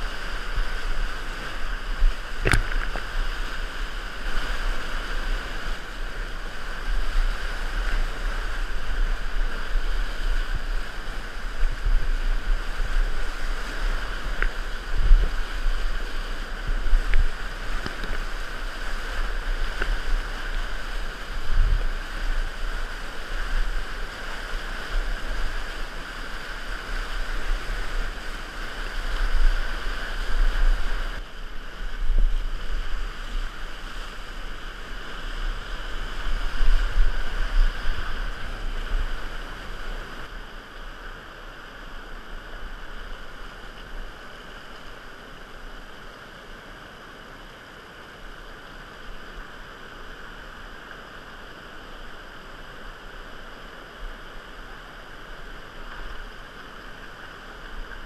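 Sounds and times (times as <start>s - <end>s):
wind buffeting microphone: 0.0s - 40.3s
whitewater rapids rushing: 0.0s - 58.0s
low thumps of water: 1.4s - 3.3s.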